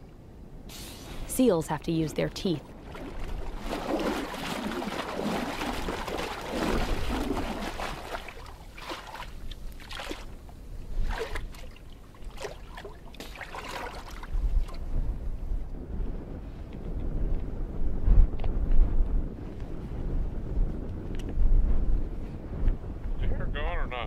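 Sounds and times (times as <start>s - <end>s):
water sloshing and splashing: 2.4s - 15.0s.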